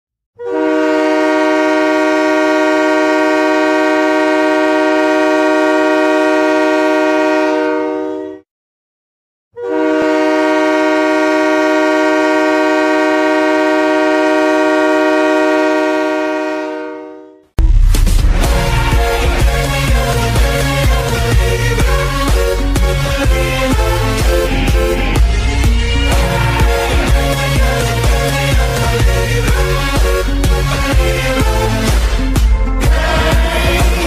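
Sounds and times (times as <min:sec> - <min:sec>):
goal horn blasts: 0:00.4 - 0:08.4, 0:09.6 - 0:17.4, 0:18.3 - 0:32.1.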